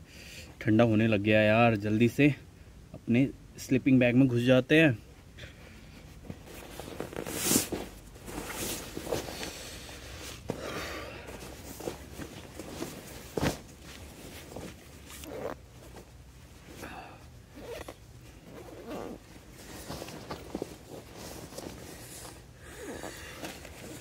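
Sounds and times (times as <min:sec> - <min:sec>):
nylon rustling: 0:06.2 - 0:24.0
sleeping bag zipper: 0:15.0 - 0:16.0, 0:17.4 - 0:20.0, 0:20.8 - 0:24.0.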